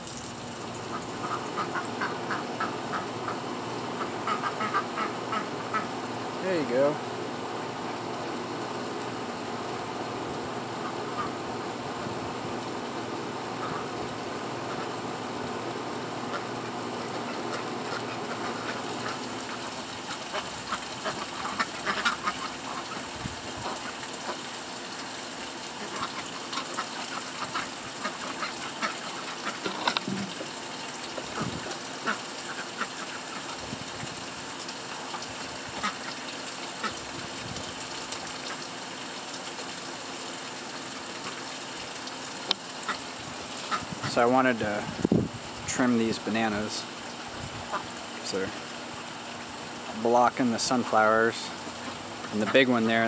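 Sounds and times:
ducks quacking: 0.9 - 6.0, 10.8 - 11.4, 13.5 - 14.0, 16.2 - 24.4, 42.9 - 44.2, 47.7 - 48.0.

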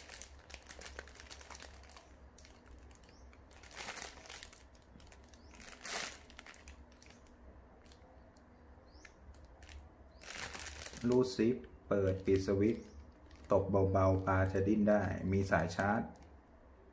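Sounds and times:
plastic packaging crinkling: 0.0 - 16.4.

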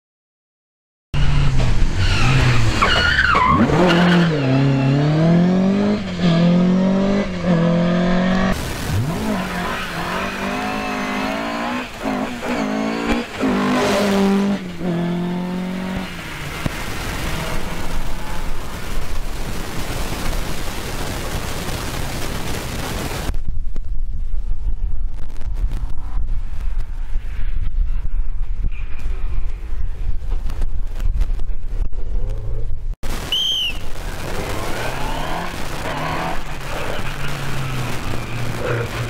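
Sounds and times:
tyre squeal: 1.2 - 5.0
rally car engine revving: 1.2 - 20.2, 34.0 - 39.0.

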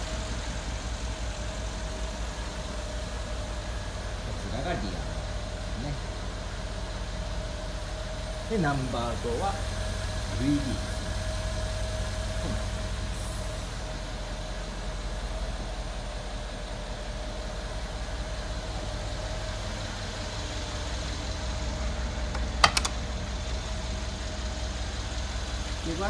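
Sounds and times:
car engine idling: 0.0 - 26.0
door latch clicking: 22.3 - 23.0.

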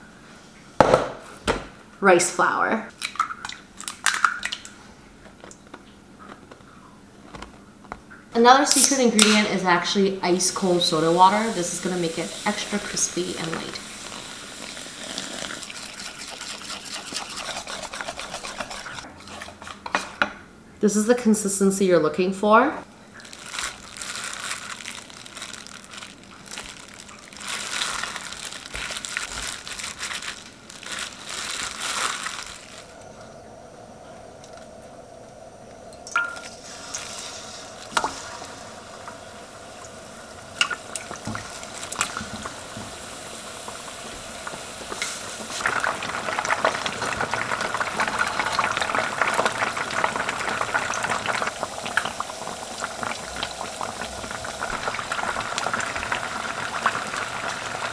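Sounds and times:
chicken deep-frying in oil: 8.7 - 19.1, 36.0 - 57.9.

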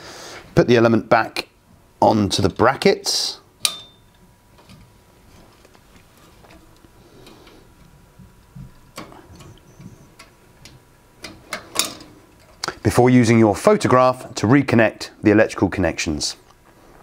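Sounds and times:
metal clink: 3.6 - 4.2.

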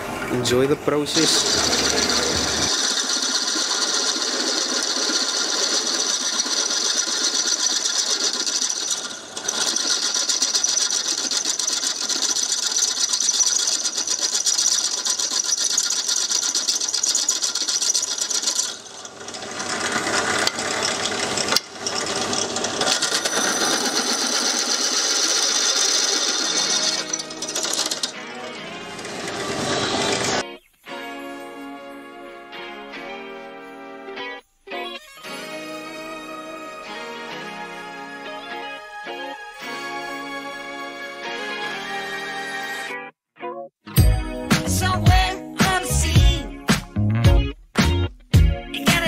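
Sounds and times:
drill press grinding into metal: 0.1 - 30.4.

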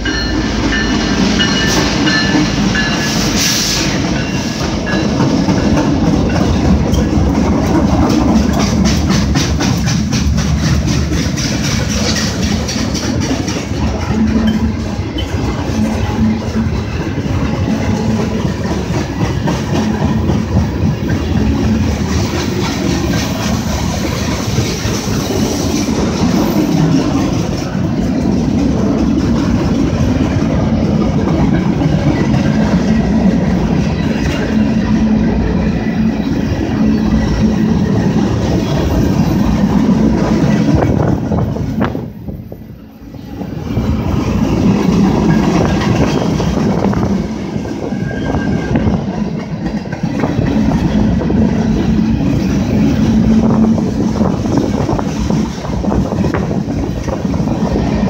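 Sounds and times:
freight cars clickety-clack on rails: 0.0 - 58.0.

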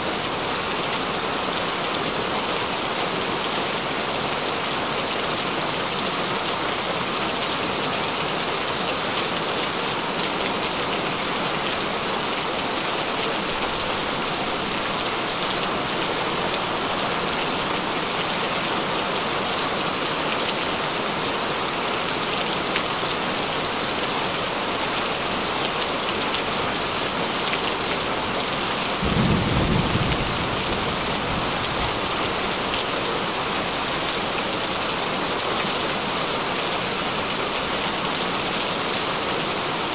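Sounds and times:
heavy rain falling: 0.0 - 39.9
low roll of thunder: 29.0 - 32.1.

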